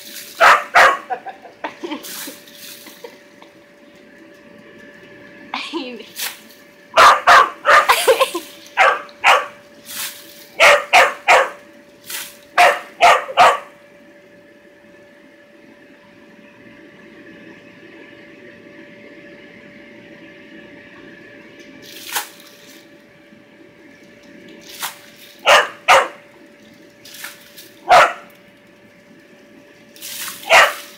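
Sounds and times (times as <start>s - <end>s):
steady hum: 0.0s - 30.9s
small dog barking: 0.4s - 1.2s, 7.0s - 8.0s, 8.8s - 9.6s, 10.6s - 11.6s, 12.6s - 13.7s, 25.4s - 26.2s, 27.8s - 28.3s, 30.4s - 30.9s.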